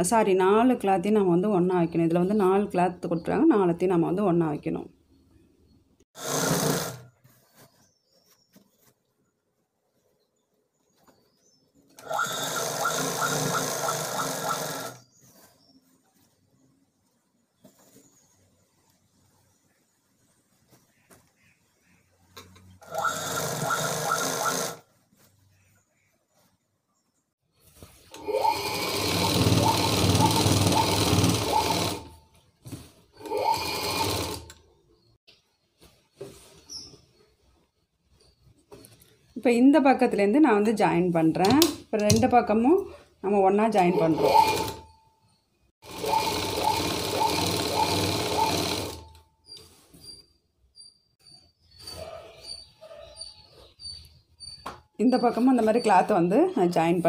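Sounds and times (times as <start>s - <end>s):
sewing machine stitching: 6.2s - 7.1s, 12.0s - 15.0s, 22.8s - 24.8s, 28.1s - 32.2s, 33.2s - 34.6s, 43.8s - 45.0s, 45.8s - 49.2s.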